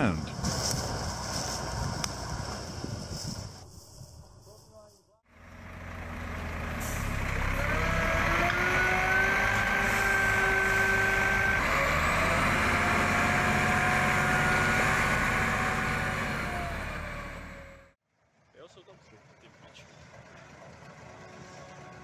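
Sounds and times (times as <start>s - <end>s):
diesel truck engines under load: 0.0s - 4.6s, 5.3s - 18.0s.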